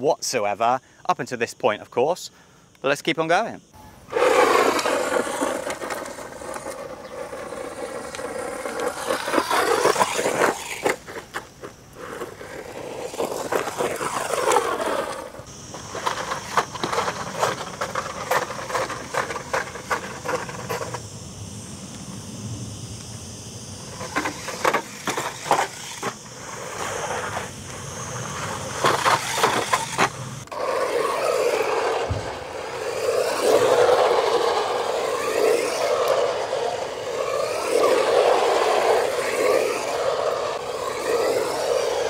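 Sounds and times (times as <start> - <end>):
tyres crunching over gravel: 4.1 - 21.0, 23.9 - 42.0
electric motor whining: 12.3 - 42.0
tyres knocking on wooden ramp: 32.0 - 32.4.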